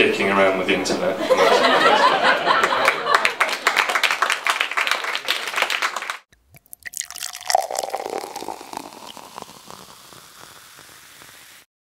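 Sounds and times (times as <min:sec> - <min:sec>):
bubbles fizzing and crackling: 0:06.3 - 0:11.7
water poured into a glass: 0:06.4 - 0:11.7.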